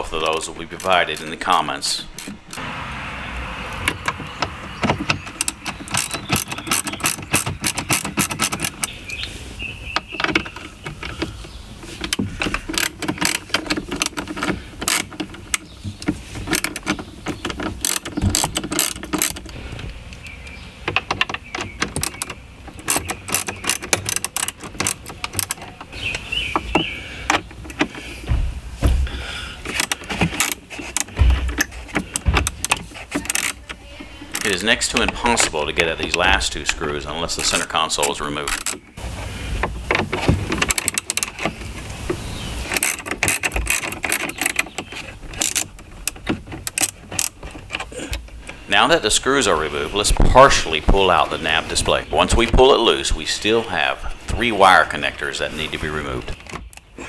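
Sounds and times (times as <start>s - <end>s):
hand ratchet clicking: 4.9s - 8.9s, 16.5s - 19.6s, 21.0s - 25.8s, 29.6s - 34.5s, 42.6s - 48.2s
dull knocks: 26.2s - 33.4s.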